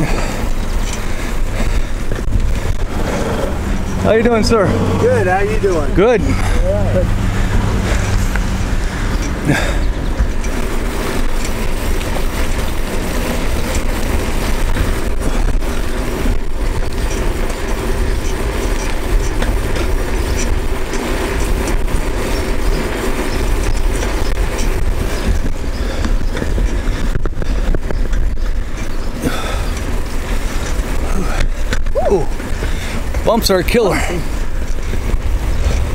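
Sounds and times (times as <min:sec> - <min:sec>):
bicycle tyres rolling on asphalt: 0:00.0 - 0:35.9
wind buffeting microphone: 0:00.0 - 0:35.9.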